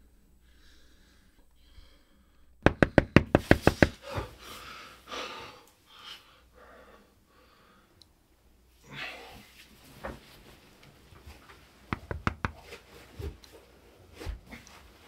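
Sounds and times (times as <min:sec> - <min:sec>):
rapid knocking on a door: 0:02.6 - 0:04.0, 0:11.9 - 0:12.6.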